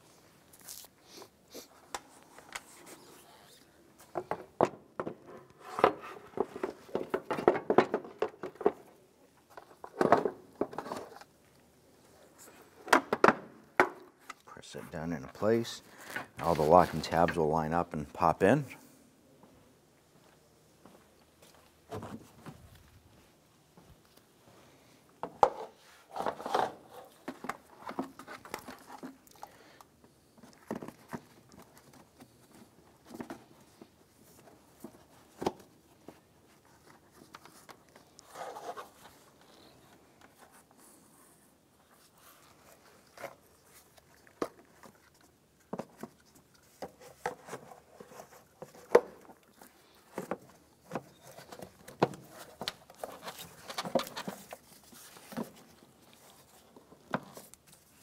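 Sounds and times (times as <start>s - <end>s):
plastic parts clicking and knocking: 4.1s - 11.2s.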